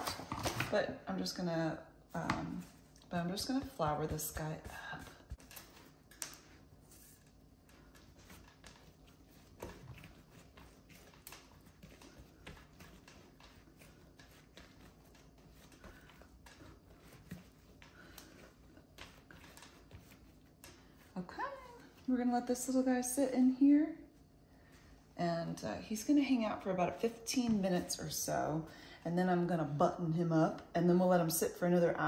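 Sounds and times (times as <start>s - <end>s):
hands patting dough: 2.1s - 22.3s.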